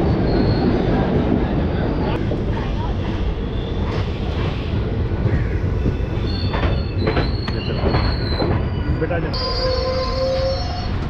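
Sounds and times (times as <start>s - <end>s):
train rumbling: 0.0s - 11.0s
high brake squeal: 6.3s - 11.0s.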